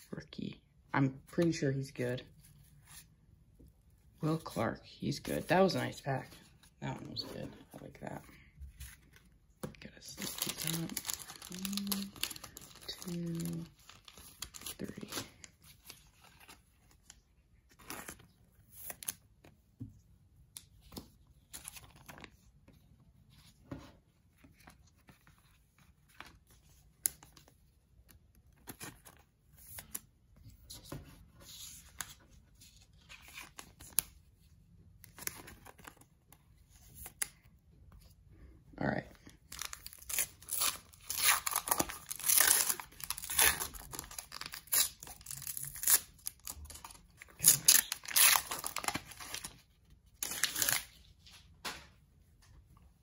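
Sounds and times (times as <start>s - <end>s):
paper wrapper tearing and crinkling: 10.2s - 16.6s, 39.4s - 51.1s.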